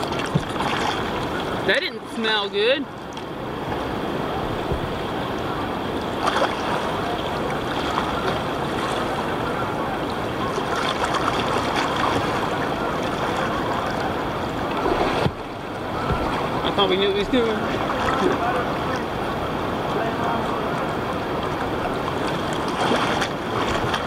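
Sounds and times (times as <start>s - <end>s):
small water splashes: 0.0s - 20.1s, 20.7s - 24.0s
river water rushing along kayak hull: 0.0s - 24.0s.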